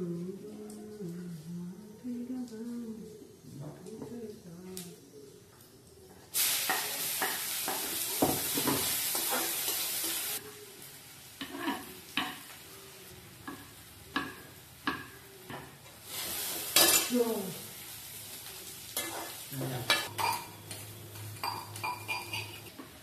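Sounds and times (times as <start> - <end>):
oil sizzling in a pan: 6.3 - 23.0
spoon stirring and scraping a pan: 6.7 - 10.4, 11.4 - 12.6, 19.0 - 23.0.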